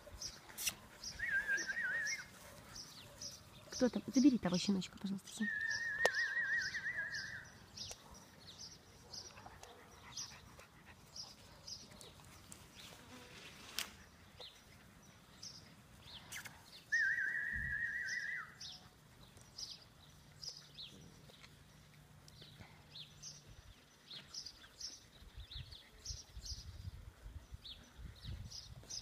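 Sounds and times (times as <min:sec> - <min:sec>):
small birds chirping: 0:00.0 - 0:29.0
high wavering whistle: 0:05.5 - 0:07.4, 0:16.9 - 0:18.6.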